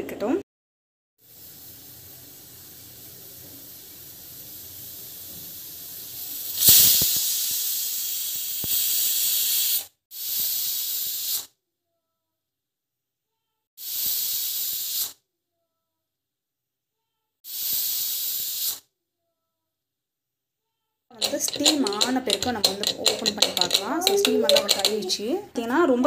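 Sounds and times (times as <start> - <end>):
pressure cooker steam hissing: 1.2 - 11.5, 13.8 - 15.2, 17.5 - 18.8, 21.2 - 25.2
pressure cooker whistle bursts: 6.4 - 11.5.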